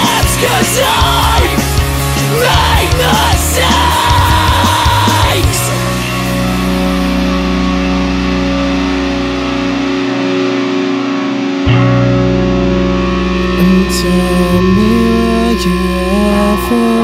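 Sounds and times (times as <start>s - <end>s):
shouted vocals: 0.0s - 5.9s
electric guitar chords: 0.0s - 17.0s
low bass: 0.0s - 17.0s.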